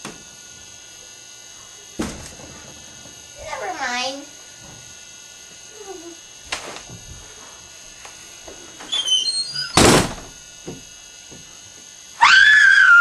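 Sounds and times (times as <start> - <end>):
sharp bang: 9.8 - 10.3
loud high-pitched scream: 12.2 - 13.0.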